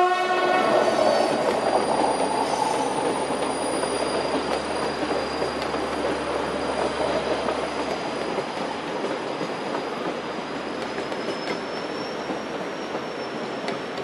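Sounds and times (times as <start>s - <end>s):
train wheels rushing on track: 0.0s - 14.0s
high-pitched wheel squeal: 0.6s - 7.2s, 9.6s - 13.7s
faint rail clicks: 3.0s - 14.0s.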